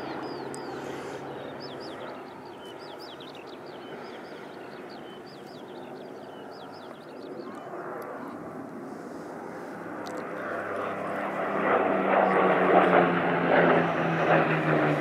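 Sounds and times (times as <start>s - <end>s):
small birds chirping: 0.0s - 8.4s
propeller aircraft drone: 0.0s - 15.0s.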